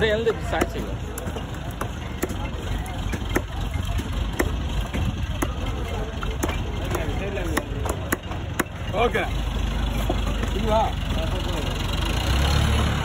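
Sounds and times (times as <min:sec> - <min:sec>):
cleaver chopping on wooden block: 0:00.4 - 0:02.5, 0:03.1 - 0:05.7, 0:06.3 - 0:08.8.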